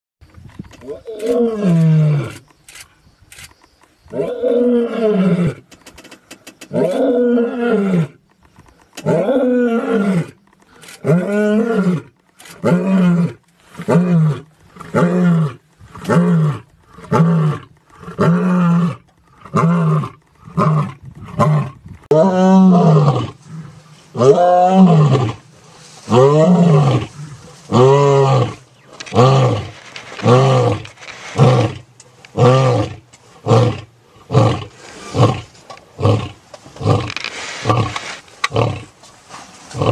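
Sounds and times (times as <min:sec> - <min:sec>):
lions roaring: 0:11.0 - 0:38.9.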